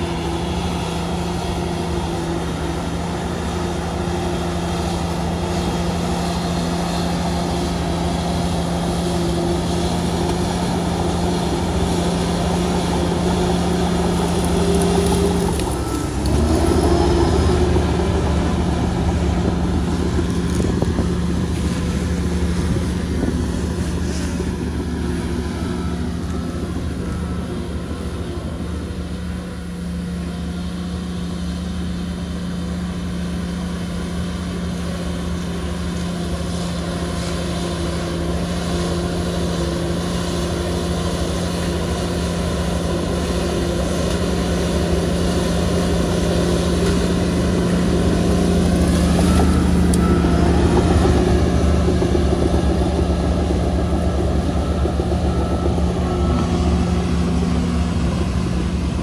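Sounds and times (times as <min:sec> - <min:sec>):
bulldozer diesel engine humming: 0:00.0 - 0:59.0.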